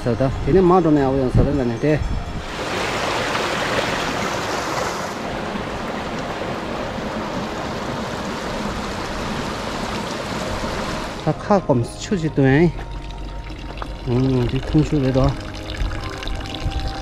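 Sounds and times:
brook running over stones: 0:12.1 - 0:17.0.

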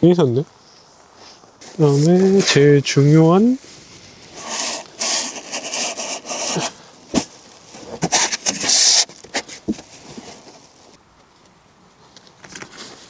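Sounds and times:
plastic and cardboard rustling: 0:04.0 - 0:11.0, 0:12.0 - 0:13.0.

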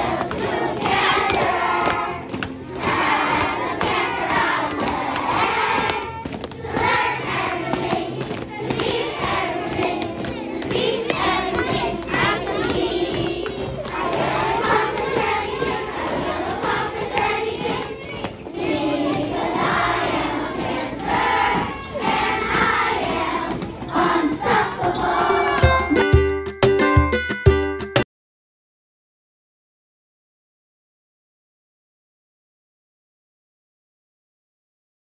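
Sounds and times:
children singing and chanting: 0:00.0 - 0:26.0.

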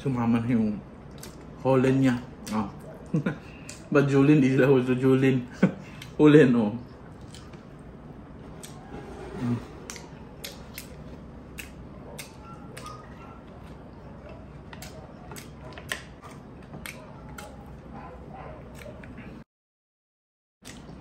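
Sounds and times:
wet mouth chewing smacks: 0:01.0 - 0:01.6, 0:06.9 - 0:08.9, 0:09.8 - 0:19.4, 0:20.6 - 0:21.0.

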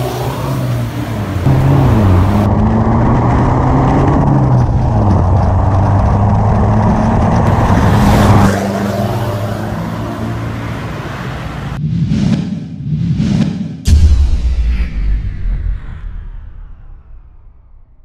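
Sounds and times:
diesel van engine droning: 0:00.0 - 0:07.6.

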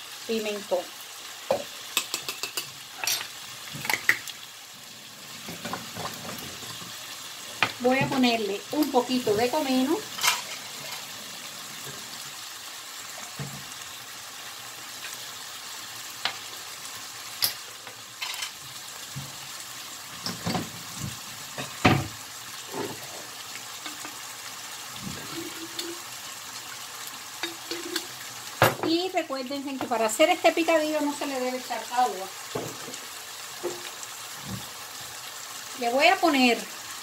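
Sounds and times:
ground beef sizzling in a pan: 0:00.0 - 0:37.0.

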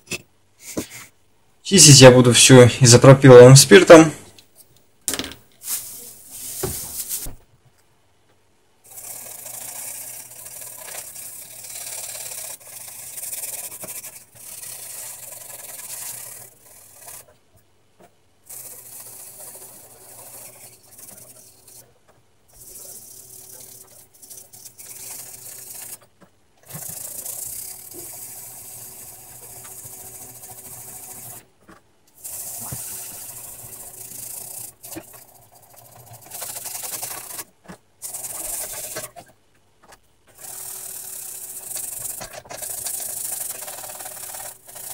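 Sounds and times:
brush scrubbing circuit board: 0:08.9 - 0:17.4, 0:18.5 - 0:21.9, 0:22.5 - 0:26.0, 0:26.6 - 0:31.5, 0:32.2 - 0:39.3, 0:40.4 - 0:44.9.

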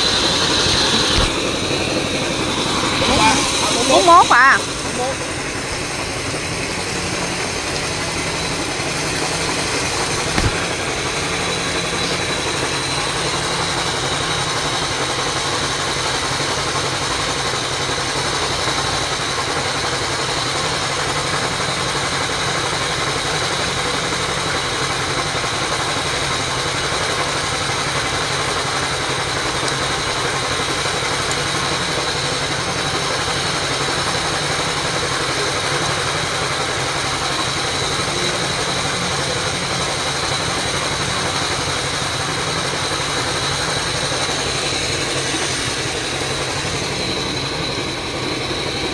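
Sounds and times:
water pump engine running: 0:00.0 - 0:48.9
short knock: 0:10.2 - 0:10.8.

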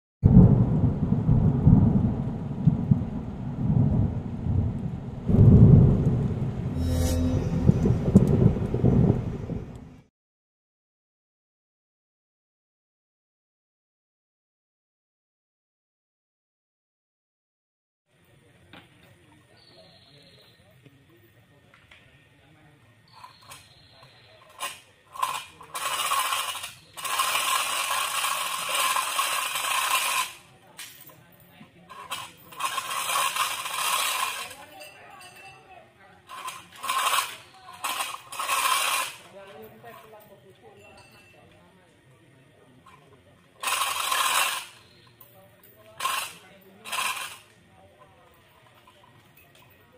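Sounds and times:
thunder rumbling: 0:00.2 - 0:10.1
chain hoist rattling: 0:24.5 - 0:31.2, 0:31.9 - 0:35.6, 0:36.3 - 0:40.3, 0:43.6 - 0:47.5.

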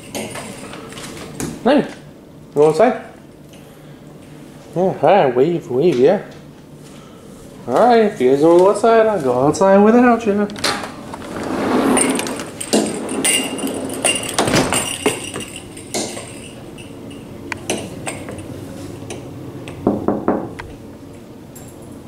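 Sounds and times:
light metallic clinks: 0:12.6 - 0:18.5.

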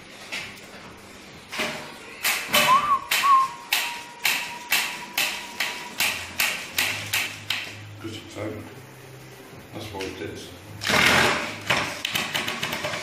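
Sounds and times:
thin steady whistle: 0:02.6 - 0:04.0.

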